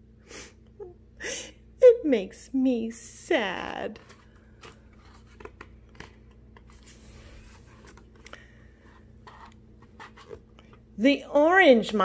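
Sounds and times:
paper page rustling: 0:04.0 - 0:08.2.

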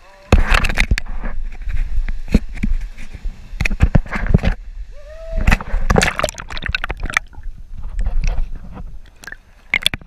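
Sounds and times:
water splashing around kayak: 0:05.4 - 0:10.0.

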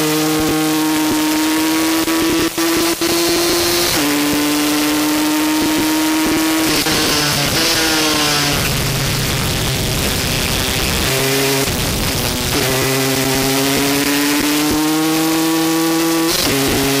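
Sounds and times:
race motorcycle engine revving: 0:00.0 - 0:17.0
wind rush: 0:06.6 - 0:13.2.

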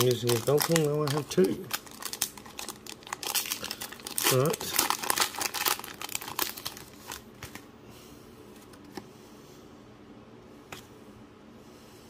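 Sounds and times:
foil wrapper crinkling: 0:00.0 - 0:07.6
card handling: 0:00.0 - 0:07.7.

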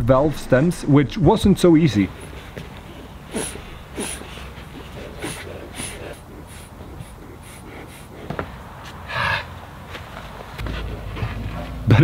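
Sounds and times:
breathy rush: 0:02.0 - 0:12.0
person breathing hard: 0:02.1 - 0:09.7.

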